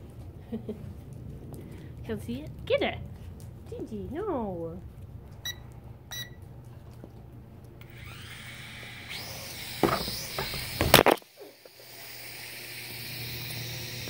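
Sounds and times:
short electronic beeps: 0:05.4 - 0:06.4
drone motors whining: 0:07.8 - 0:14.0
knocks and clatter: 0:09.8 - 0:11.1.

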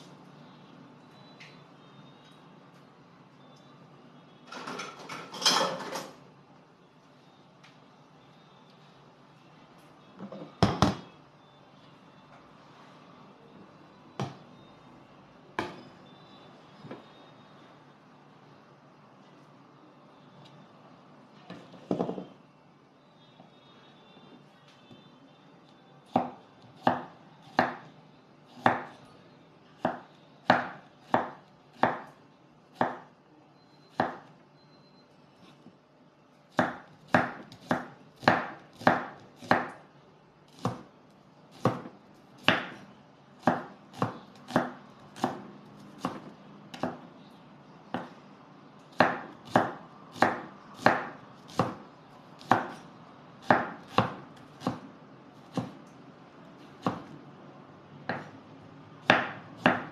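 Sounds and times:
knife chopping on wooden board: 0:28.6 - 0:28.9, 0:36.6 - 0:39.8, 0:41.6 - 0:42.8, 0:43.4 - 0:47.0, 0:47.9 - 0:48.2, 0:49.0 - 0:51.8, 0:52.4 - 0:52.8, 0:53.4 - 0:54.9, 0:55.5 - 0:55.8, 0:58.1 - 0:58.3, 0:59.1 - 0:59.9.

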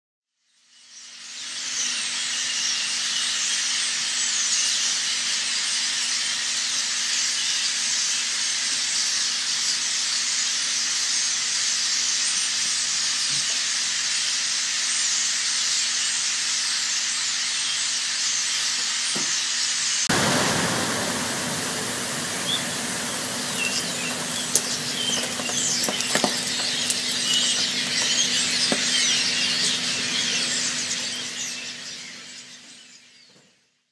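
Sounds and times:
starling flock chattering and whistling: 0:00.9 - 0:33.4
flock wingbeats: 0:20.1 - 0:32.8
droppings ticking: 0:20.2 - 0:32.2.

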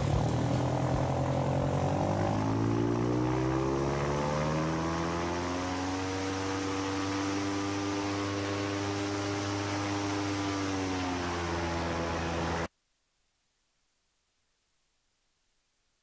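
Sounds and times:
airboat engine and propeller drone: 0:00.0 - 0:12.7.

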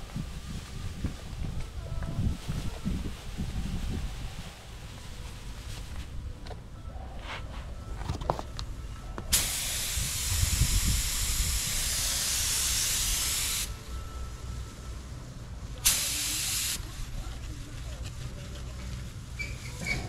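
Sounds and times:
paint spray gun hissing: 0:09.3 - 0:13.7, 0:15.8 - 0:17.0.

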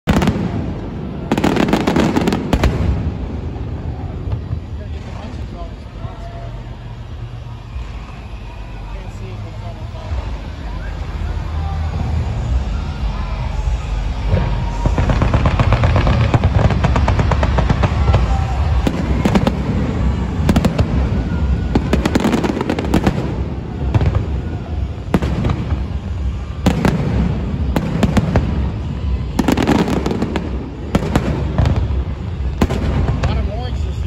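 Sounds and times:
fireworks booming: 0:00.0 - 0:05.8, 0:14.2 - 0:34.0
fireworks crackling: 0:00.0 - 0:34.0.

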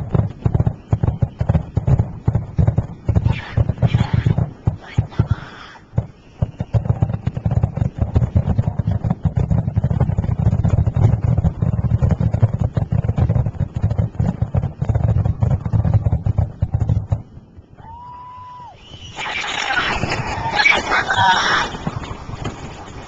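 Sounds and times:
fireworks bursts and booms: 0:00.0 - 0:17.3.

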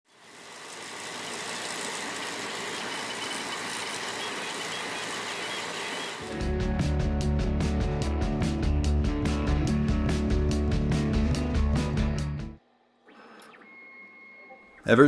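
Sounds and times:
faint high whining tones: 0:00.2 - 0:06.3, 0:12.8 - 0:15.0
three d printer fans and motion: 0:00.2 - 0:06.3.

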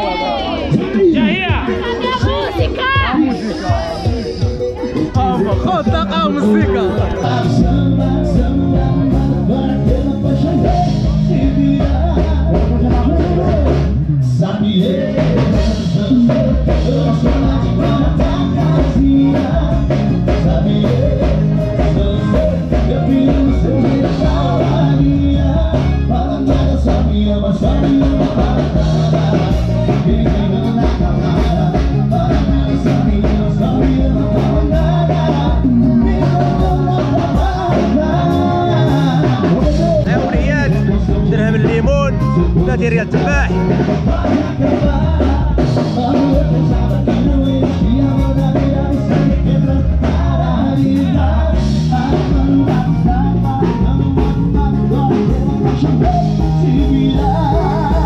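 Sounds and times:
acoustic guitars: 0:00.0 - 0:58.0
man singing into a microphone: 0:00.0 - 0:58.0
steady bass line: 0:00.0 - 0:58.0.

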